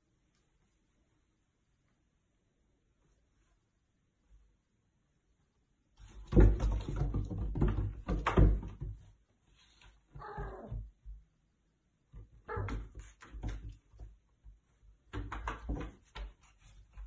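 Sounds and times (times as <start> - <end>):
cat vocal sound: 10.1 - 10.9
cat claws scrabbling in bathtub: 15.0 - 17.0.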